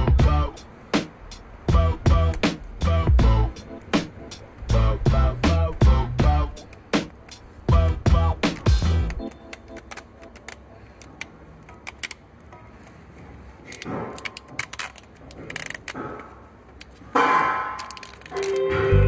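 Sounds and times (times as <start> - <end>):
pliers clicking and rattling on metal: 13.6 - 18.6.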